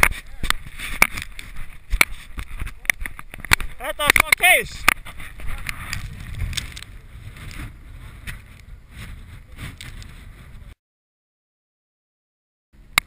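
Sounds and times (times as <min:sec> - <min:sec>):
wind buffeting microphone: 0:04.6 - 0:10.8.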